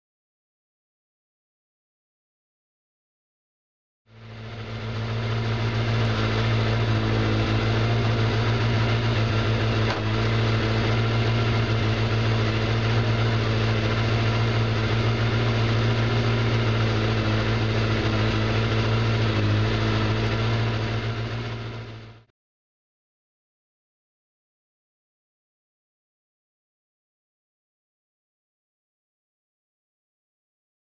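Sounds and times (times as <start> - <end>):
motorcycle engine idling: 4.1 - 22.3.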